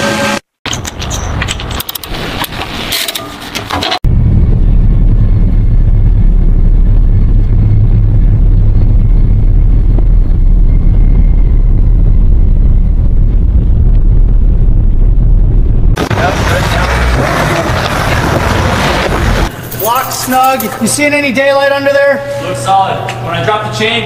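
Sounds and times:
heavy truck engine rumble: 4.1s - 20.0s
chain clinking and rattling: 19.5s - 21.0s.

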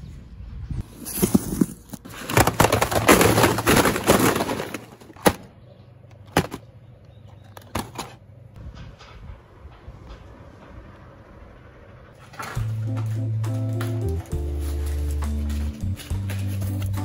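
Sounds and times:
cardboard crackling and rustling: 0.8s - 5.5s.

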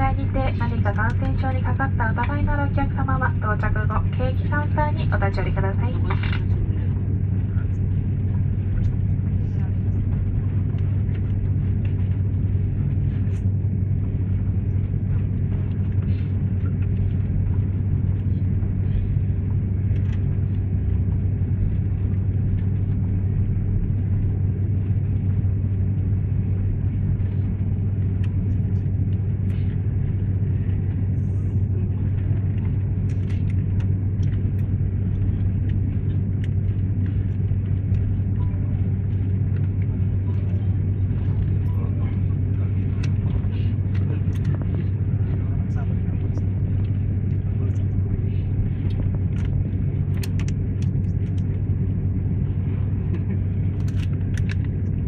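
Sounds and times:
jet engines idling drone: 0.0s - 55.0s.

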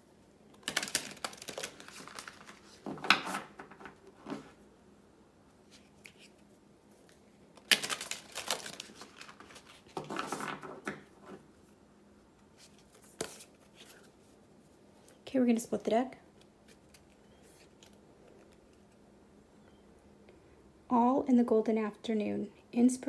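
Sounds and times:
cards being shuffled: 0.5s - 4.6s, 5.7s - 11.4s, 12.6s - 14.2s.

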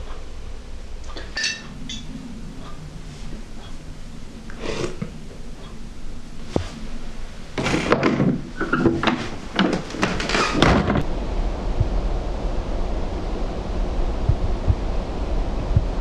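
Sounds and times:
rough knocks and rustles: 7.6s - 11.1s
wind buffeting microphone: 10.5s - 16.0s.

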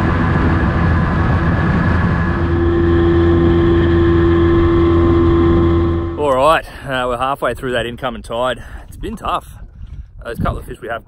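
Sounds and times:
steady higher hum: 0.0s - 7.1s
outboard motor droning: 0.0s - 10.0s
water rushing past hull: 0.0s - 10.5s.

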